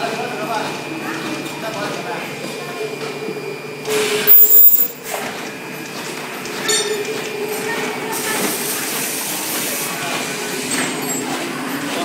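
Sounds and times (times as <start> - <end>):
machine mechanical hum: 0.0 - 12.0.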